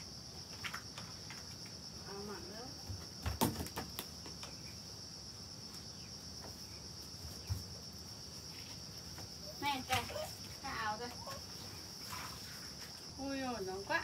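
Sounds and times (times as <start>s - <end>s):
dull thump: 2.9s - 4.0s.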